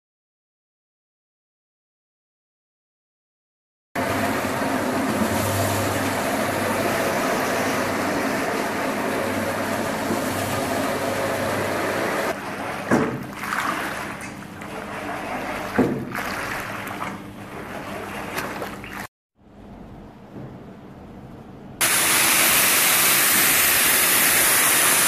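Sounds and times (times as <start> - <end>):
floor scrubbing machine hum: 4.0 - 19.1, 21.8 - 25.0
squeegee sloshing soapy water: 4.8 - 19.1.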